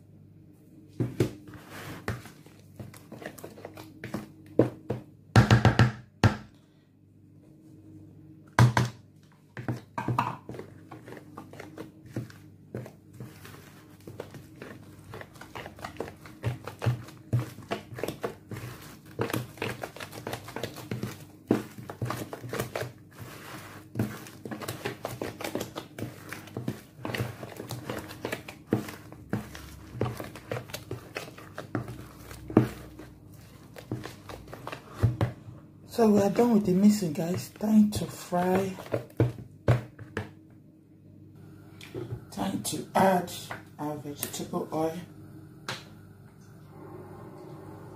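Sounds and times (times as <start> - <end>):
spoon stirring batter in bowl: 1.0 - 5.1, 9.3 - 35.4, 36.0 - 40.3.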